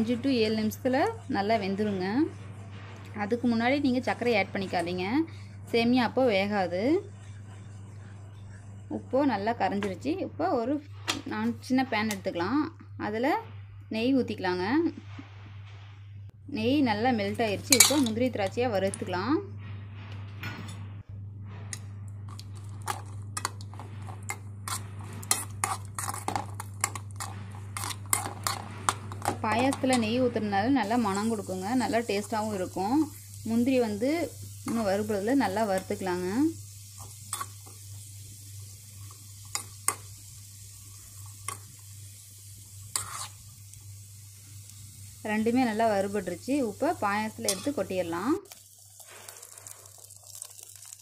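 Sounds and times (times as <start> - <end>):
steady low hum: 0.0 - 49.2
faint frying sizzle: 21.7 - 51.0
metal spoon scraping metal pan: 22.9 - 32.9, 37.0 - 37.7, 42.9 - 43.5, 47.4 - 47.9.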